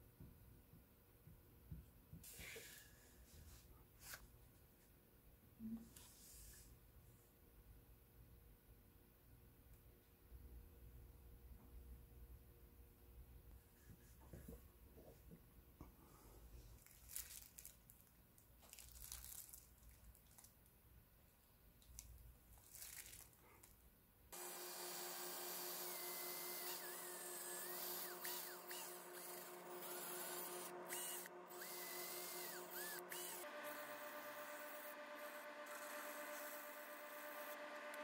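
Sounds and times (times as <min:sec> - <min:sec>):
power drill polishing wood: 0:24.4 - 0:38.0.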